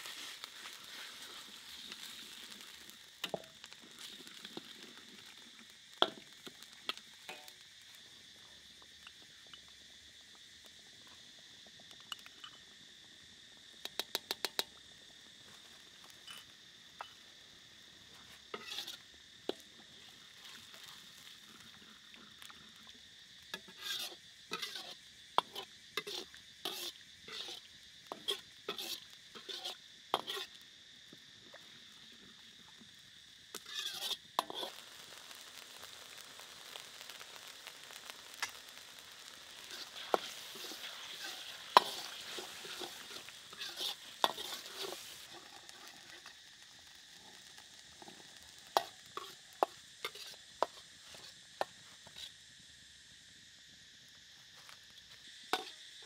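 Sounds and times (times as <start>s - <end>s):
sauce sizzling: 0.0s - 54.3s, 55.0s - 56.0s
metal ladle scraping wok: 7.3s - 7.5s, 18.5s - 19.6s, 23.6s - 30.5s, 33.6s - 34.7s, 39.6s - 46.3s, 48.0s - 51.3s.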